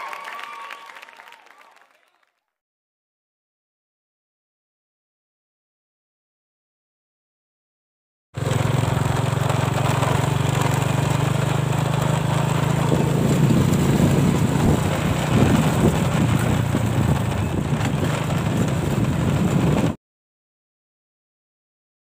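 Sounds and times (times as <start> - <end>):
motorcycle engine running: 8.4 - 20.0.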